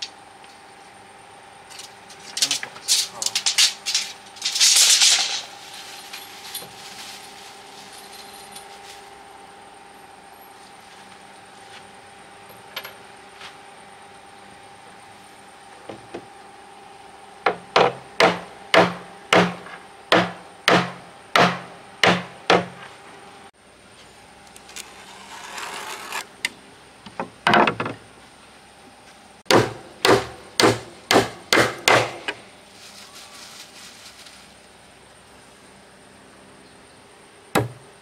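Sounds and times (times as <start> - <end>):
hammer striking wood: 17.5 - 22.9, 29.5 - 32.4, 37.6 - 37.8
scraping: 24.6 - 26.3.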